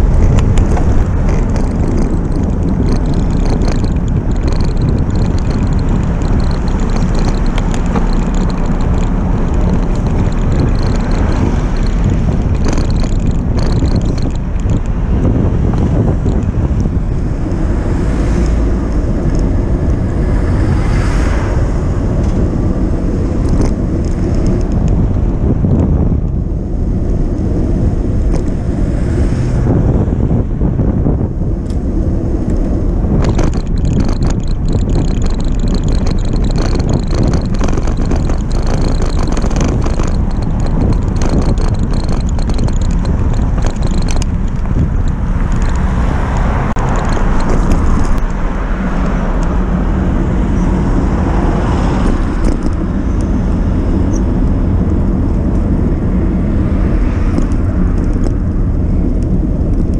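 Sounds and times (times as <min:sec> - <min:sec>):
rattling clicks: 0:00.0 - 0:17.6, 0:18.3 - 0:20.2, 0:23.3 - 0:26.4, 0:32.4 - 0:48.4, 0:51.8 - 0:53.4
traffic noise: 0:00.0 - 0:59.9
tyre road noise: 0:00.0 - 0:59.9
wind rumbling on microphone: 0:00.0 - 0:59.9.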